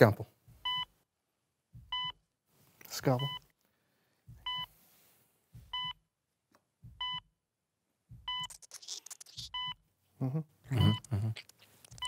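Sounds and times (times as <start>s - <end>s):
heart monitor beeps: 0.6s - 0.9s, 1.8s - 2.2s, 3.2s - 3.5s, 4.3s - 4.7s, 5.6s - 6.0s, 6.8s - 7.3s, 8.1s - 8.7s, 9.4s - 9.8s, 10.7s - 11.1s.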